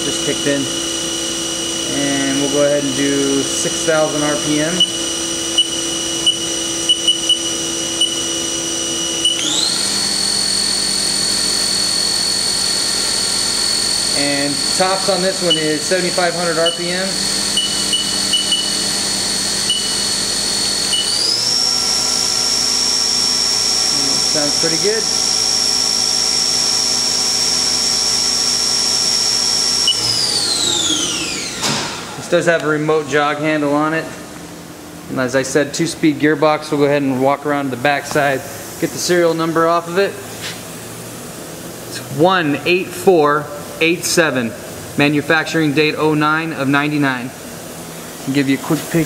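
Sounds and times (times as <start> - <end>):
machine spindle whining: 0.0 - 33.6.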